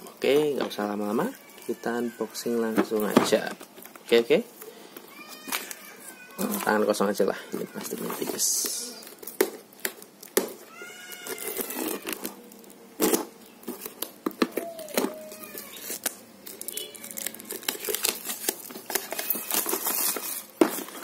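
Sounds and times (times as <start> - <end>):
plastic shrink-wrap tearing: 5.2 - 21.0.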